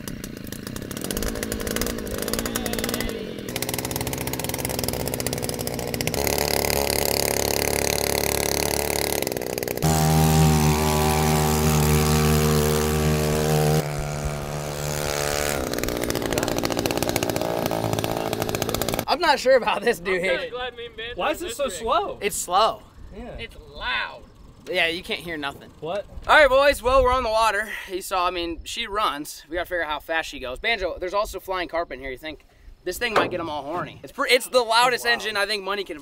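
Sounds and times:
two-stroke outboard motor running: 0.0 - 19.1.

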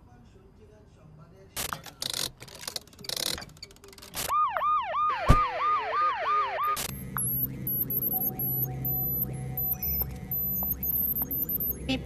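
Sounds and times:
siren yelping: 4.3 - 12.0
low steady hum: 4.4 - 12.0.

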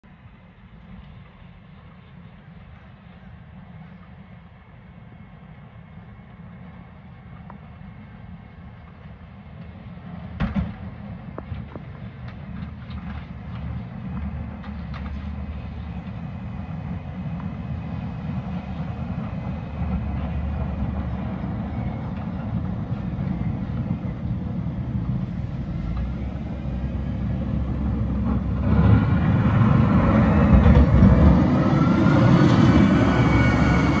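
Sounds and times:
wheel loader diesel engine: 6.7 - 34.0
rising whine: 17.2 - 34.0.

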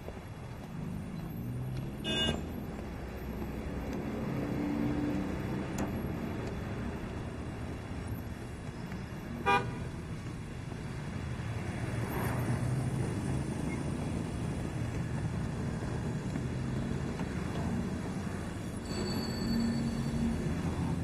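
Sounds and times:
low street rumble: 0.0 - 21.0
vehicle horn toot: 2.0 - 2.4, 9.4 - 9.8.

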